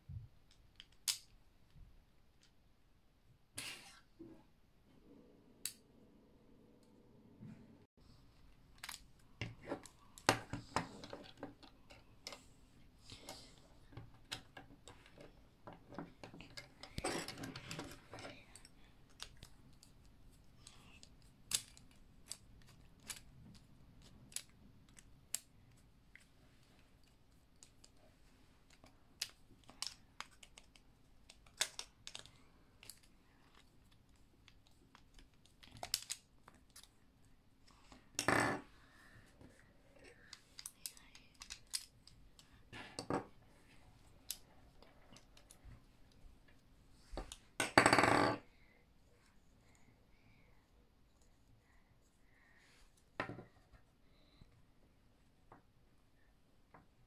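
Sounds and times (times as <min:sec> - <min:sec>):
plastic parts clicking: 0:28.6 - 0:36.9, 0:40.2 - 0:43.1.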